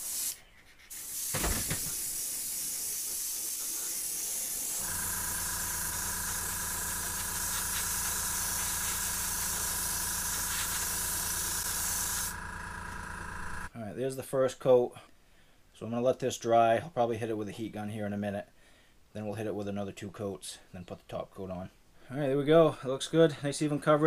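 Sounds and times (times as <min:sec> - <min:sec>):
airbrush hissing: 0:00.0 - 0:13.7
low motor hum: 0:04.8 - 0:13.7.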